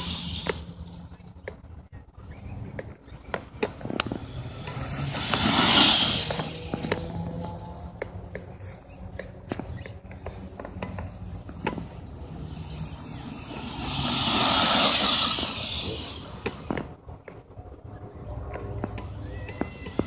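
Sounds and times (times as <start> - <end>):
toy truck motor whir: 4.2 - 7.7, 12.3 - 16.8.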